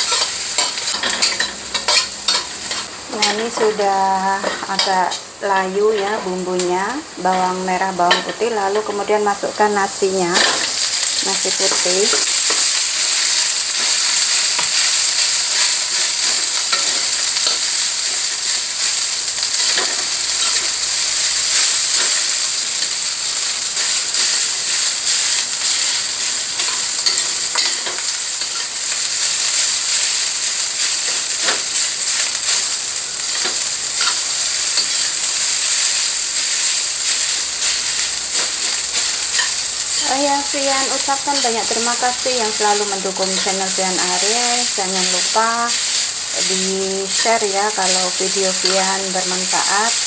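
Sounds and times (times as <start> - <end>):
metal spatula scraping wok: 0.0 - 3.8, 37.6 - 50.0
rice sizzling in hot oil: 0.0 - 50.0.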